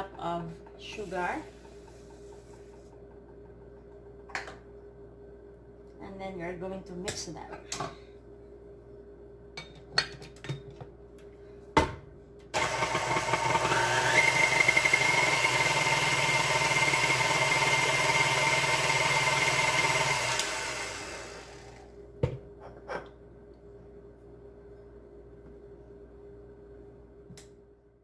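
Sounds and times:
stand mixer motor whine: 12.6 - 21.9.

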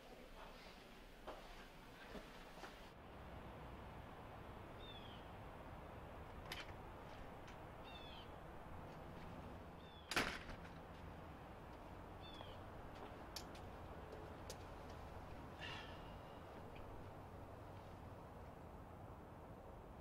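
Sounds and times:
faint outdoor ambience: 0.0 - 20.0
small bird chirping: 4.8 - 5.3, 7.8 - 8.4, 9.8 - 10.1, 12.2 - 12.6
door shutting bang: 10.1 - 10.7.

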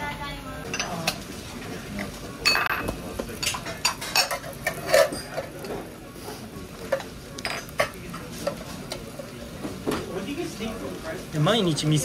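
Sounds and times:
metal spatulas clinking on griddle: 2.4 - 5.8.

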